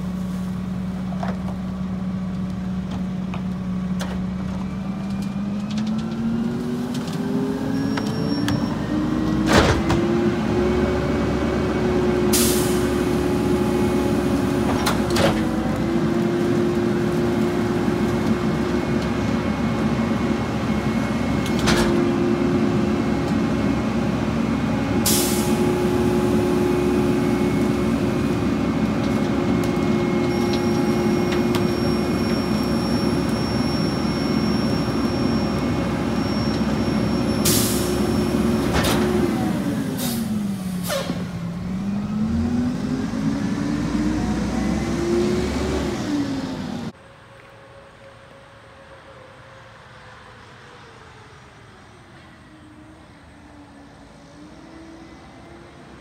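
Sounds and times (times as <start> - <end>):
truck diesel engine revving: 3.6 - 47.0.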